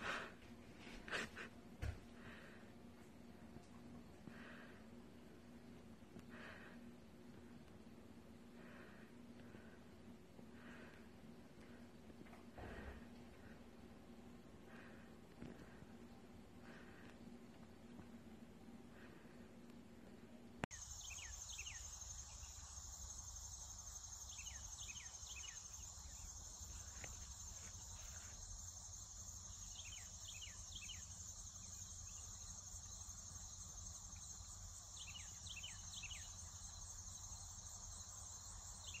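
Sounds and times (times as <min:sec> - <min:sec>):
bird chirps: 0:20.7 - 0:39.0
crickets trilling: 0:20.7 - 0:39.0.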